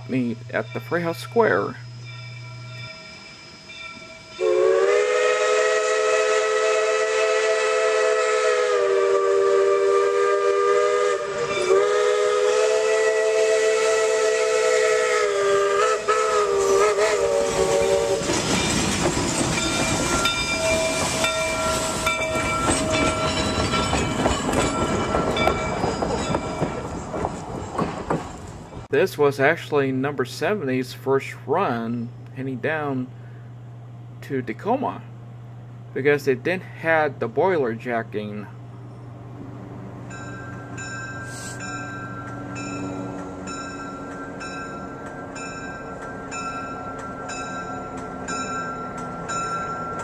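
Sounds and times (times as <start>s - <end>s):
steam hissing: 0.0s - 24.1s, 41.2s - 41.8s
steam locomotive whistle: 2.7s - 18.4s
train wheels clattering over rails: 17.4s - 28.9s.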